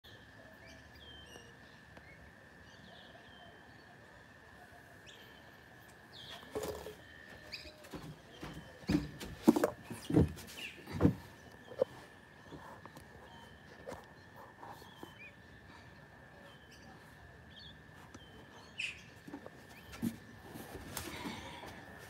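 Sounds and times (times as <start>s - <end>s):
small birds chirping: 0.1s - 22.0s
thumps and knocks: 7.9s - 11.8s.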